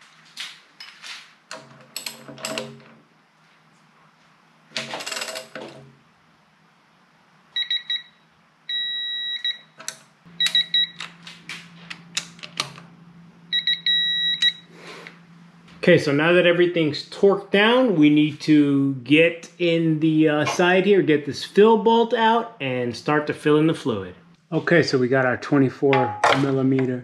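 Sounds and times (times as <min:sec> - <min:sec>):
torque adapter beeping: 0:10.4 - 0:11.2, 0:13.5 - 0:14.7.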